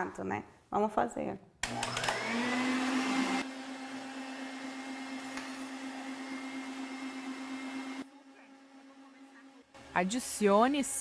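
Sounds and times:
stand mixer motor hum: 0:01.6 - 0:08.0.

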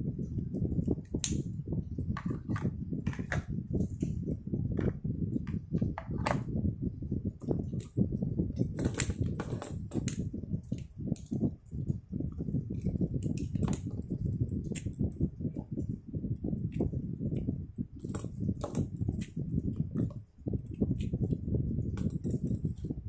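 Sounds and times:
low rumble: 0:00.0 - 0:23.0
plastic pens clicking and clattering: 0:08.6 - 0:11.5, 0:12.7 - 0:15.6, 0:16.7 - 0:22.9.

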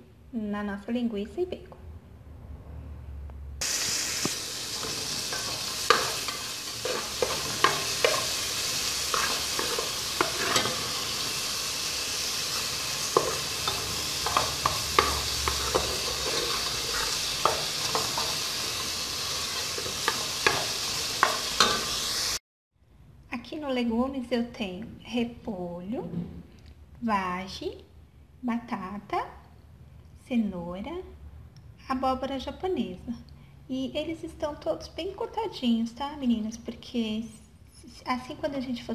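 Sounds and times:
vegetables sizzling in fat: 0:03.6 - 0:22.4.

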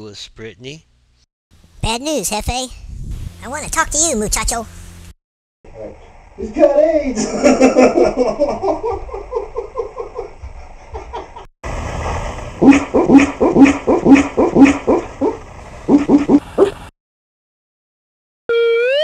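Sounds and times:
dog barking in sleep: 0:12.6 - 0:16.8.

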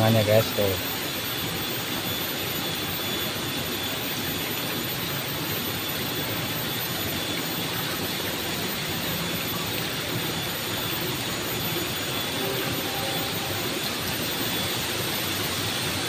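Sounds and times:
faint high tone: 0:12.4 - 0:14.6.

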